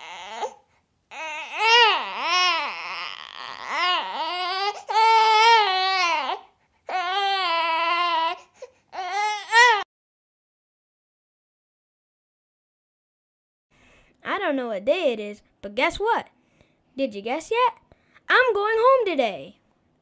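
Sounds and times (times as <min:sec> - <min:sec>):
baby crying: 0:00.0 - 0:09.9.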